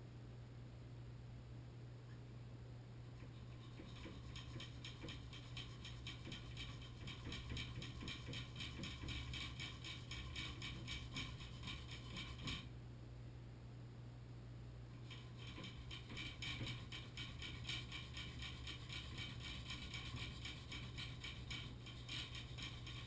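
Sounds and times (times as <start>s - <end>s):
hand tool scraping metal: 3.3s - 12.7s, 15.0s - 23.0s.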